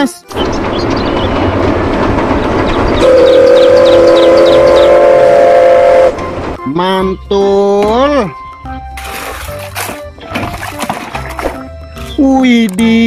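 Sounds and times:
steam locomotive running: 0:00.0 - 0:07.6
steam whistle blast: 0:03.0 - 0:06.3.

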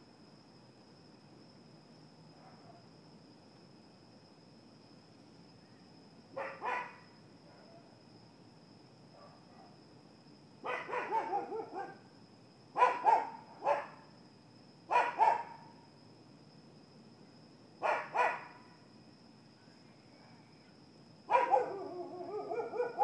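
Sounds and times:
dog barking: 0:02.4 - 0:02.8, 0:06.4 - 0:07.8, 0:09.2 - 0:09.8, 0:10.6 - 0:12.0, 0:12.8 - 0:14.0, 0:14.9 - 0:15.7, 0:17.8 - 0:18.6, 0:21.3 - 0:23.0.

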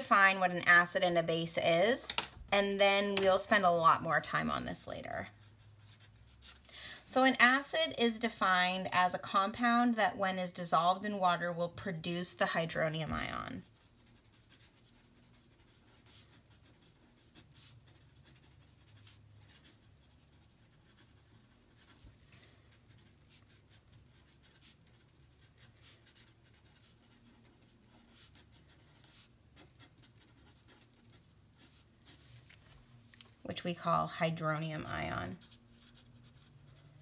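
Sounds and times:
pen scratching on paper: 0:02.6 - 0:06.6, 0:11.3 - 0:32.5, 0:33.6 - 0:37.0.

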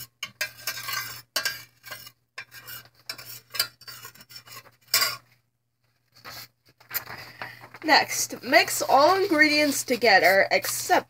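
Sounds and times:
utensil scraping metal saucepan: 0:00.0 - 0:05.4, 0:07.9 - 0:11.0.

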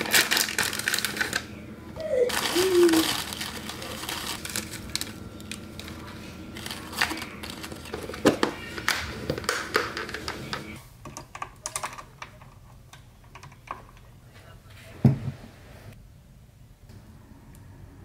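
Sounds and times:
paper liners rustling: 0:00.0 - 0:01.5, 0:02.2 - 0:08.9.

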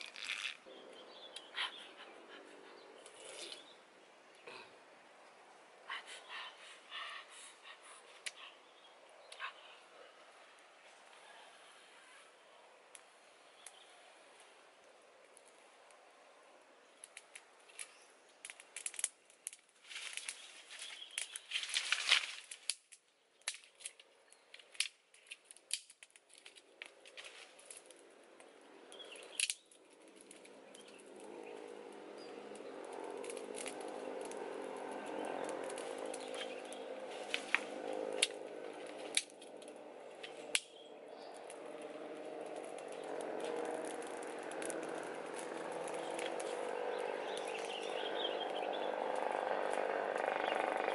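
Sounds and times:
twigs snapping: 0:00.0 - 0:00.7, 0:17.0 - 0:50.3
fire crackling: 0:00.0 - 0:01.5, 0:06.5 - 0:50.9.

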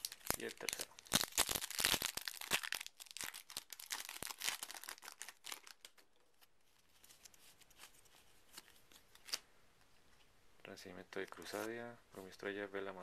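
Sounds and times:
foil wrapper tearing and crinkling: 0:00.0 - 0:06.0.

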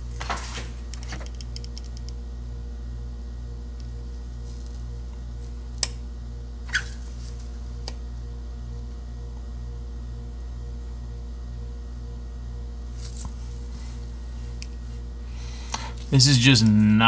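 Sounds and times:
steady low hum: 0:00.0 - 0:17.0
short squeak: 0:06.7 - 0:07.1.

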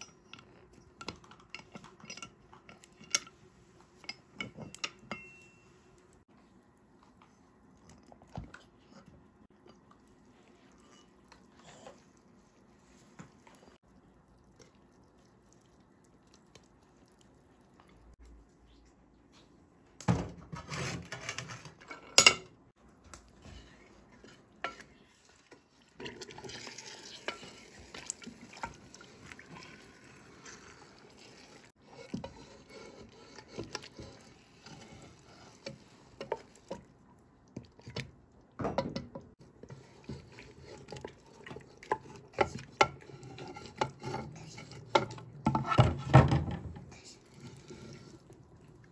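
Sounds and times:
wooden spoon scraping metal pot: 0:20.4 - 0:22.3, 0:23.4 - 0:36.8, 0:39.5 - 0:48.4.

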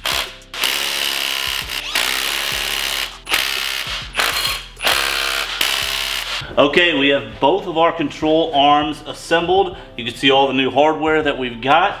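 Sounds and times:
cordless power drill driving bolts: 0:00.0 - 0:06.4.

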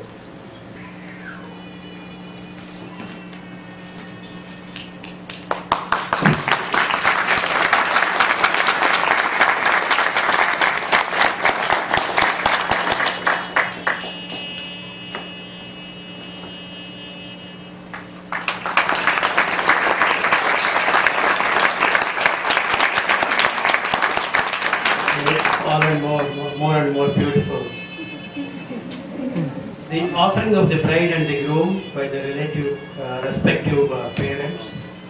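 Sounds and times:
crowd applauding: 0:05.0 - 0:15.3, 0:17.8 - 0:26.4.

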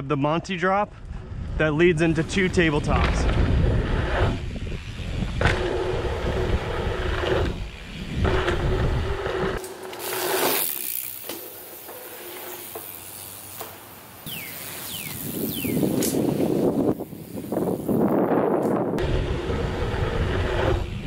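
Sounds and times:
tyre and wind rumble: 0:00.8 - 0:11.6, 0:14.2 - 0:21.0
bicycle freehub buzzing: 0:02.4 - 0:21.0
short falling chirps: 0:14.3 - 0:16.0.

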